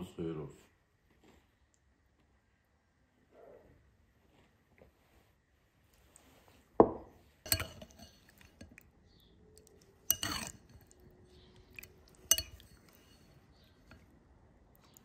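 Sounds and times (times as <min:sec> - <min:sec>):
knock on table: 0:06.8 - 0:07.1
metal spoon clinking ceramic bowl: 0:07.4 - 0:08.8, 0:09.6 - 0:14.1.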